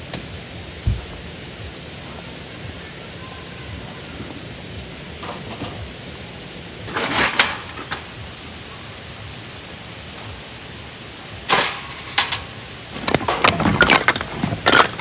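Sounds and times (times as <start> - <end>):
steady outdoor hiss: 0.0 - 15.0
camping gear clattering: 6.9 - 8.0, 11.5 - 15.0.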